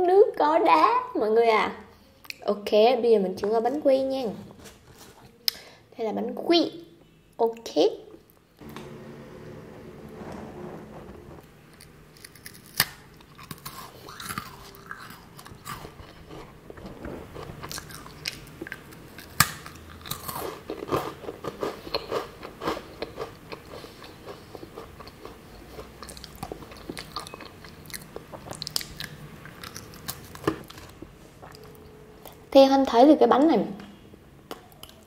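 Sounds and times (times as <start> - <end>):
crunching and chewing: 11.8 - 32.4.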